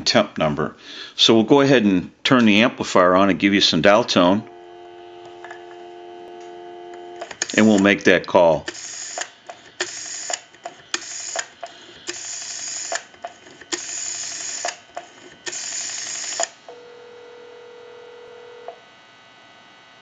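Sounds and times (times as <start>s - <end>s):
rotary dial pulse clicks: 4.8s - 8.0s, 8.6s - 16.6s
dial winding clicks: 6.4s - 8.0s, 8.6s - 16.6s
telephone ringback tone: 15.6s - 18.8s.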